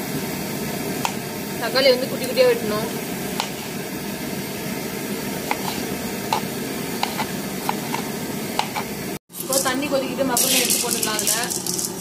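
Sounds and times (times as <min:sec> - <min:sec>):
knife tapping cutting board: 0:05.5 - 0:08.0, 0:08.6 - 0:08.9.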